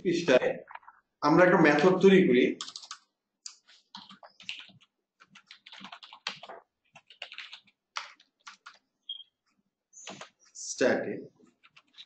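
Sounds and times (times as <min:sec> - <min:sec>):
computer keyboard typing: 0:02.6 - 0:09.2, 0:10.0 - 0:10.4, 0:11.5 - 0:12.0.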